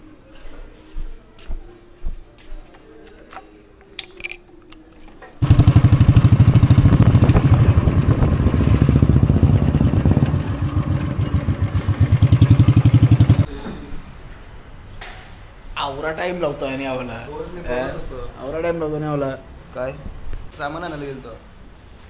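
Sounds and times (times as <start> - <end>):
motorcycle engine thumping: 5.4 - 13.5.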